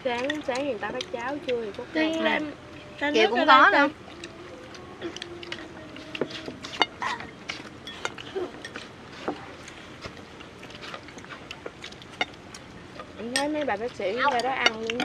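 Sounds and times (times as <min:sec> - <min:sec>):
chopsticks clicking on porcelain bowls: 0:10.8 - 0:15.0.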